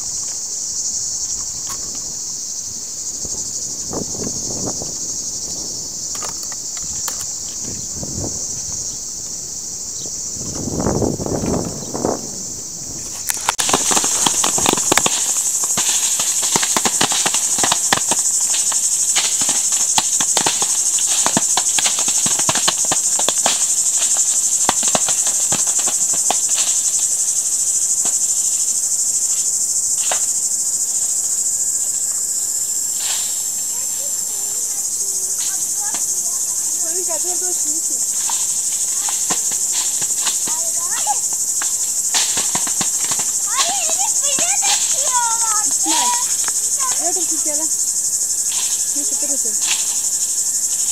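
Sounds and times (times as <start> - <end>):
insects droning: 0.0 - 50.9
fruit dropping onto plastic tarps: 38.1 - 46.5.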